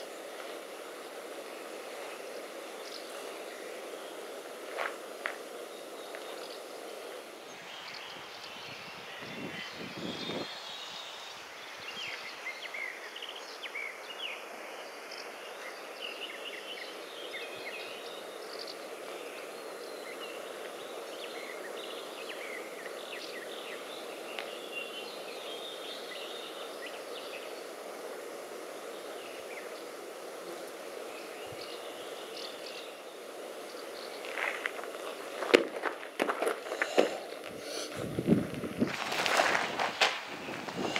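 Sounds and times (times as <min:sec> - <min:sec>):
small birds chirping: 0:00.0 - 0:39.7.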